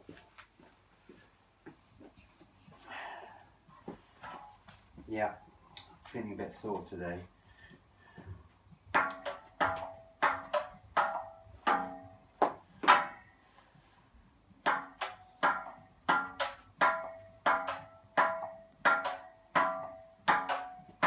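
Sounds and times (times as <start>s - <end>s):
table tennis ball ticking: 14.6s - 21.0s.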